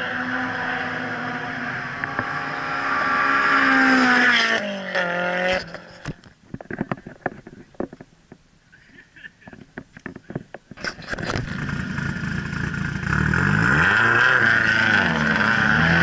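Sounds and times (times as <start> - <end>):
car engine at high revs: 0.0 - 6.2, 11.2 - 16.0.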